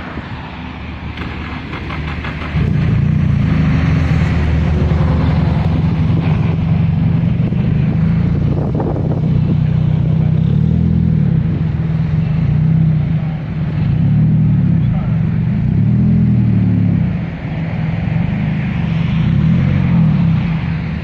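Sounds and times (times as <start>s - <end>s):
race car engine idling: 1.1s - 3.6s, 4.3s - 17.4s.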